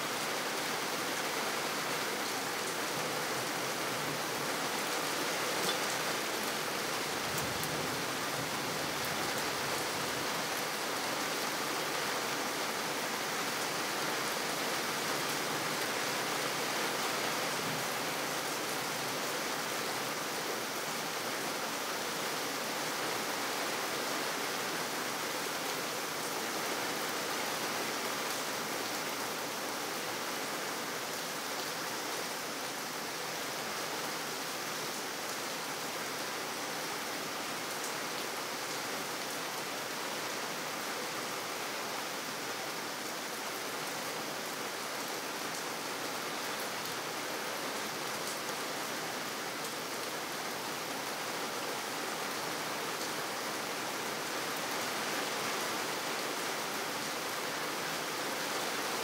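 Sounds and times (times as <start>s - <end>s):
rain on pavement: 0.0s - 59.0s.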